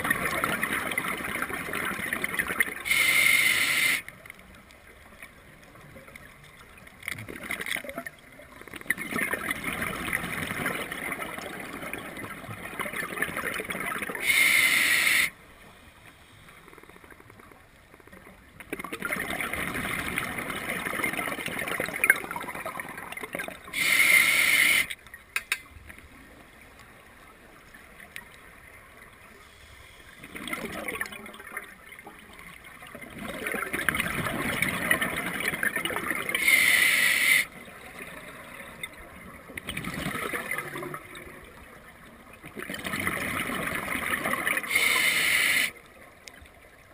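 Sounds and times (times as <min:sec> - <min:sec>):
regulator inhalation hiss: 0:02.9 - 0:04.0, 0:14.2 - 0:15.4, 0:23.8 - 0:25.0, 0:36.4 - 0:37.5, 0:44.7 - 0:45.8.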